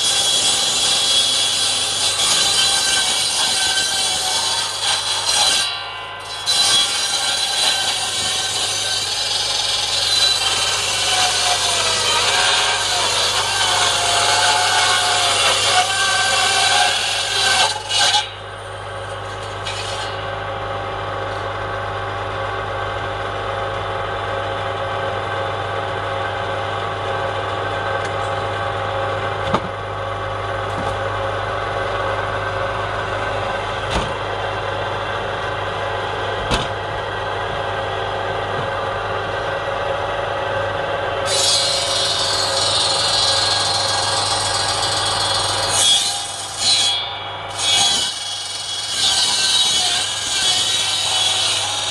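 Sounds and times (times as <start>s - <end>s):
blade sawing through log: 0.0s - 18.5s, 41.2s - 51.9s
bandsaw motor hum: 0.0s - 51.9s.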